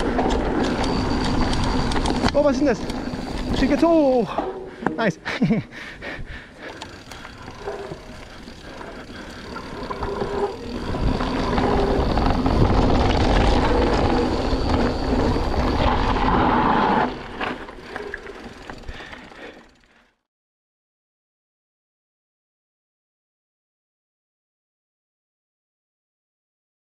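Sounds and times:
bike tyre and trail noise: 0:00.0 - 0:20.2
wind buffeting microphone: 0:10.2 - 0:16.2.

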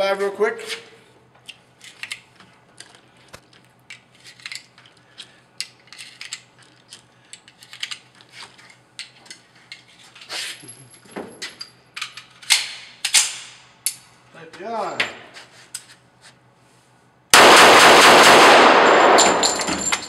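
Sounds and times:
gunshots: 0:17.4 - 0:19.4.

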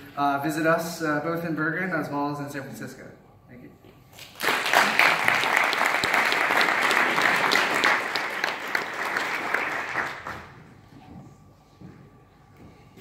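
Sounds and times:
audience applauding: 0:04.2 - 0:10.6.

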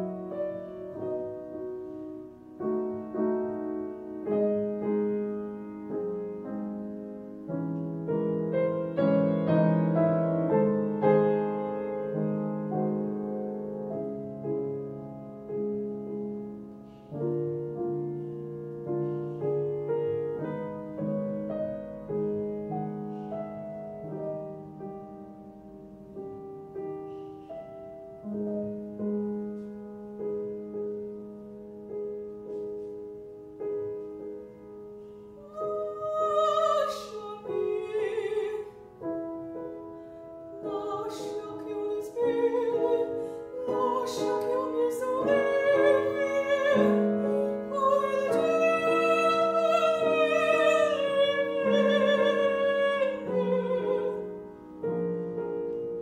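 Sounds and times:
grand piano playing: 0:00.0 - 0:56.0
woman singing with vibrato: 0:35.4 - 0:38.8, 0:40.6 - 0:54.3.

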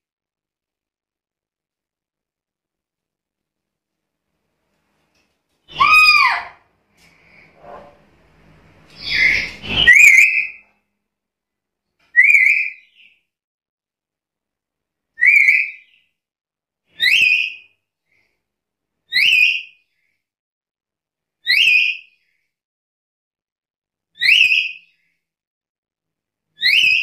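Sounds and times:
parrot harsh squawk: 0:05.7 - 0:06.6, 0:09.0 - 0:10.6
parrot rising calls: 0:05.7 - 0:06.6, 0:08.9 - 0:10.6.

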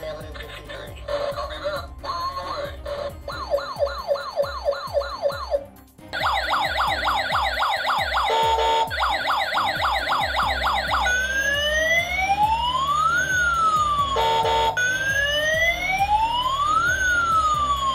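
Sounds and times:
electronic siren yelping: 0:03.0 - 0:17.9
steady siren tone: 0:06.2 - 0:17.9.

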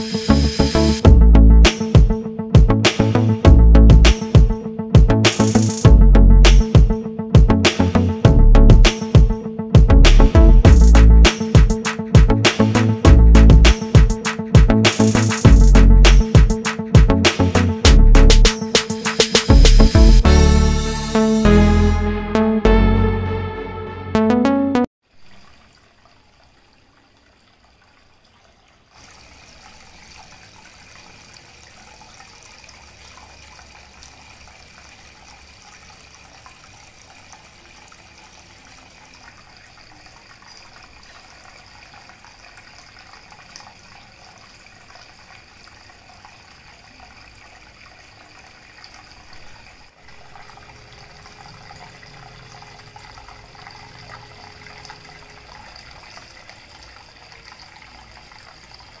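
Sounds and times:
fountain water splashing: 0:25.1 - 0:59.0.

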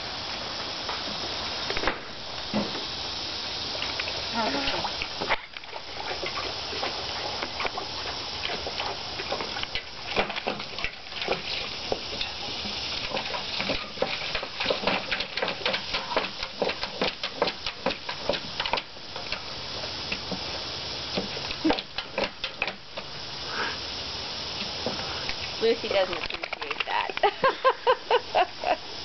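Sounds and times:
dog lapping water: 0:03.6 - 0:23.1.

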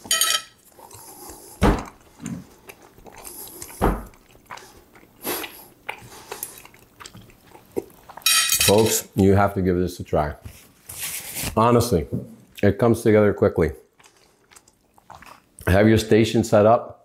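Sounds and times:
person chewing food: 0:00.0 - 0:08.3, 0:13.8 - 0:15.7.

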